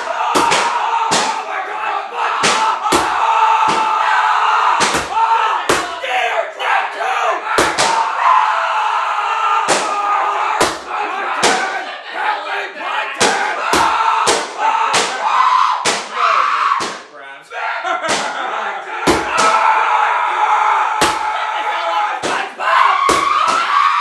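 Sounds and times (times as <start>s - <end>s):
sharp bangs or knocks: 0.0s - 1.4s, 2.4s - 4.0s, 4.8s - 5.9s
voices yelling together: 0.0s - 24.0s.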